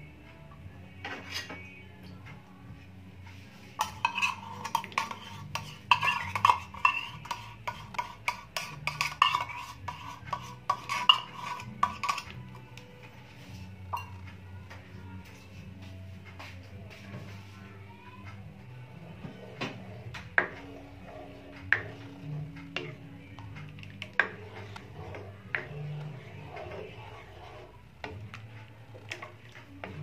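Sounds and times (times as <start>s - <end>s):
metal spoon scraping cookware: 1.0s - 1.7s, 3.7s - 12.6s, 23.8s - 28.2s.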